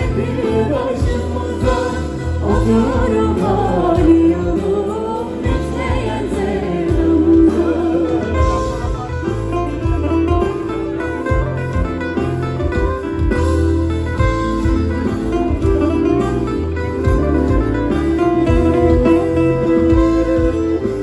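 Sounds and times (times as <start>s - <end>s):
lead vocal singing: 0.0s - 8.9s
live band playing: 0.0s - 21.0s.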